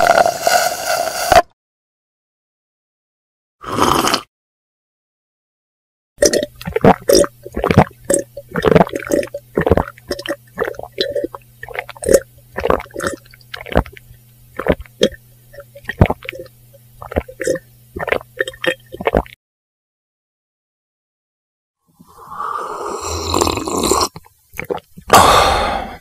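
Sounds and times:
person gulping and swallowing: 0:03.6 - 0:04.3, 0:06.2 - 0:19.4, 0:23.1 - 0:26.0.

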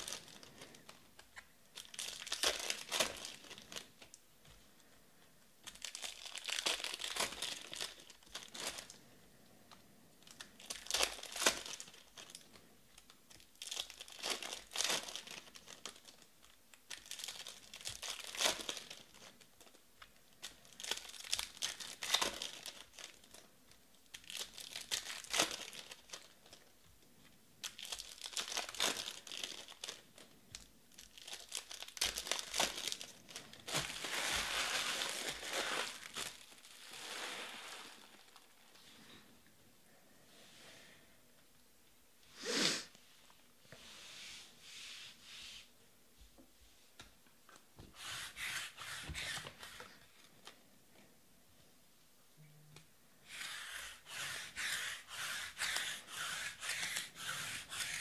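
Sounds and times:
foil wrappers crinkling: 0:01.7 - 0:04.1, 0:05.6 - 0:09.0, 0:10.2 - 0:19.8, 0:20.4 - 0:23.5, 0:24.1 - 0:26.7, 0:27.6 - 0:38.8.

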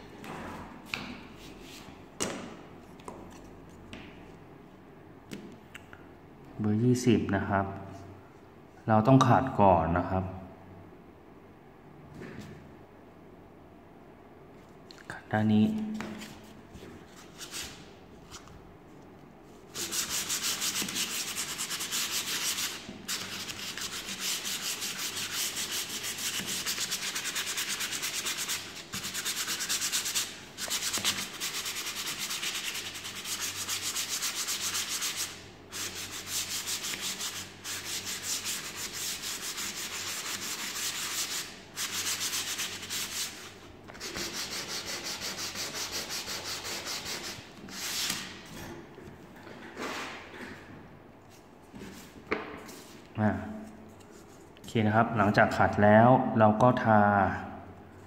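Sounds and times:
hand sanding plywood: 0:19.7 - 0:48.3.

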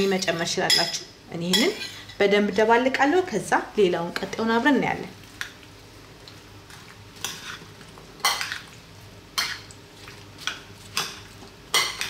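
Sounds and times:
spoon stirring in a bowl: 0:06.7 - 0:08.8, 0:09.4 - 0:12.0.

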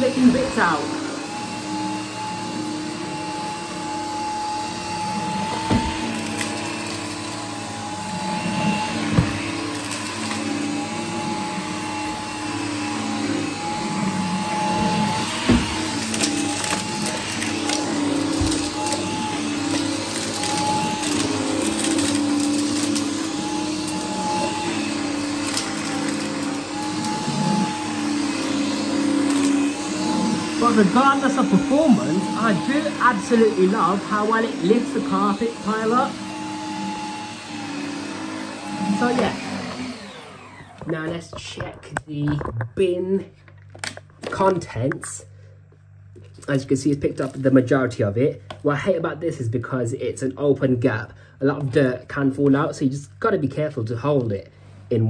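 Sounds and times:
vacuum cleaner whining: 0:00.0 - 0:43.3.

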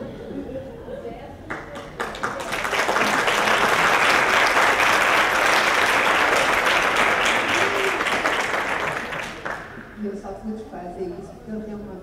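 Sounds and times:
audience applause: 0:01.5 - 0:10.0.

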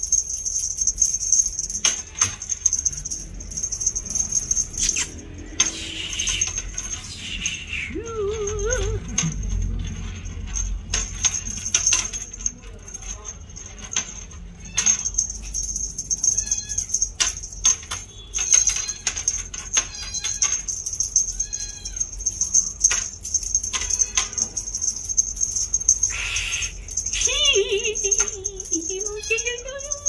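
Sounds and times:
kitten mewing: 0:26.1 - 0:30.0.

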